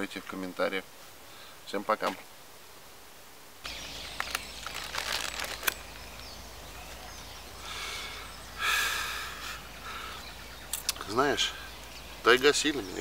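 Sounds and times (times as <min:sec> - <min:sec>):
plastic bag crinkling: 0:04.1 - 0:06.1.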